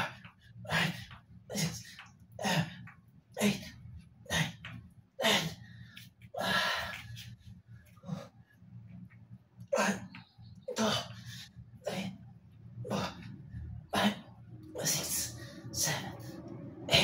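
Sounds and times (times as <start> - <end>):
man's forceful breaths: 0.0 - 8.8.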